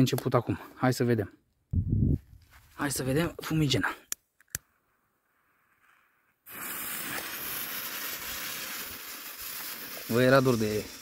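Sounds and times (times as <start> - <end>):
smoke bomb fuse hissing: 4.8 - 11.0.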